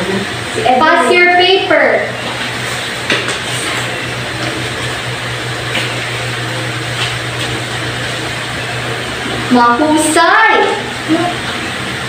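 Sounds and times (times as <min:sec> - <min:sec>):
room hum and hiss: 0:00.0 - 0:12.0.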